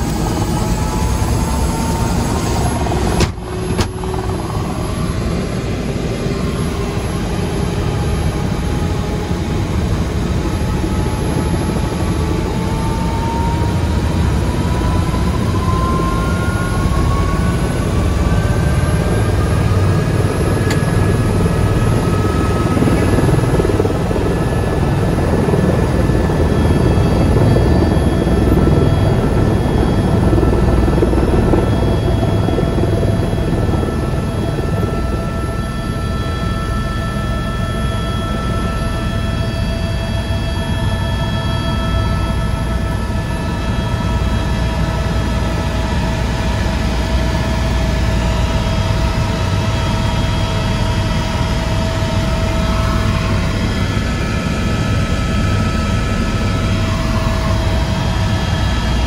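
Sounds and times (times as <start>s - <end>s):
engine whine rising in pitch: 0.0s - 8.6s
helicopter engine and rotor: 0.0s - 59.0s.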